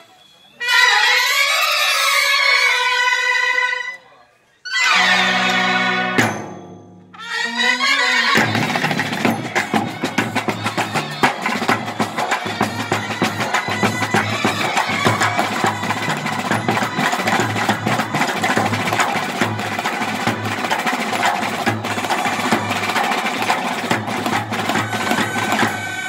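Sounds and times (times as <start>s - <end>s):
trumpets holding notes: 0.5s - 4.0s, 4.7s - 6.4s, 7.1s - 19.4s, 24.4s - 26.0s
barrel drum and bass drums: 8.4s - 26.0s
snare drum rolls: 8.4s - 26.0s.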